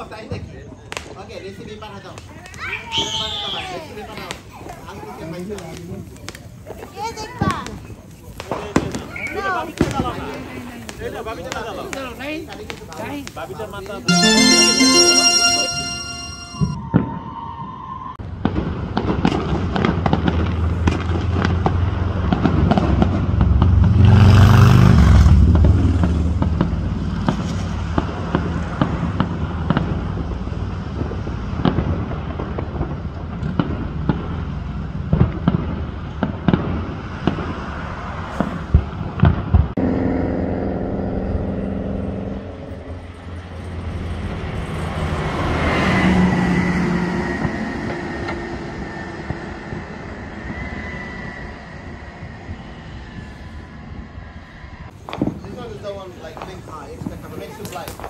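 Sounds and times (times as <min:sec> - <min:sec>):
fireworks popping and crackling: 0:02.0 - 0:14.5, 0:55.0 - 0:58.0.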